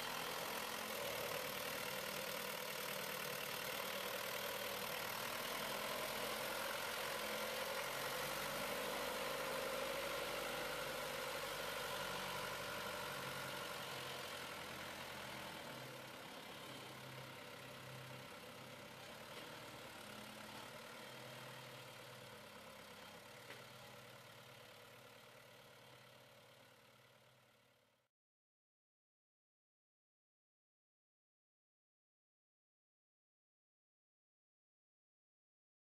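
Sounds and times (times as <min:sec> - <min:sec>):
tractor diesel engine running: 0:00.0 - 0:27.8.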